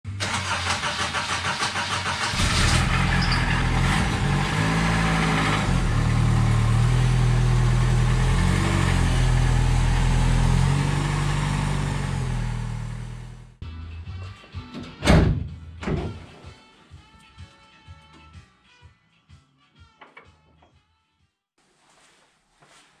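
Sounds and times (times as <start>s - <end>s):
starter cranking engine: 0.1s - 4.2s
engine running at low revs: 2.3s - 13.6s.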